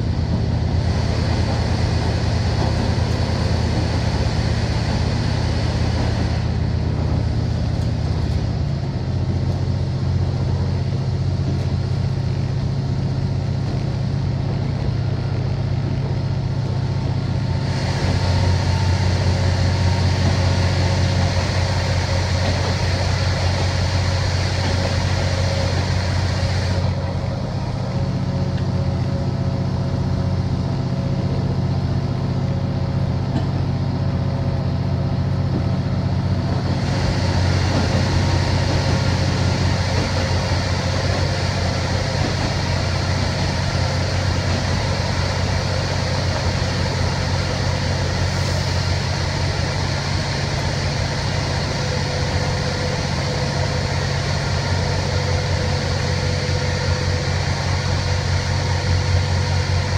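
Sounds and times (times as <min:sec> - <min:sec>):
diesel engine drone: 0:00.0 - 0:59.9
train wheel and rail noise: 0:00.0 - 0:59.9.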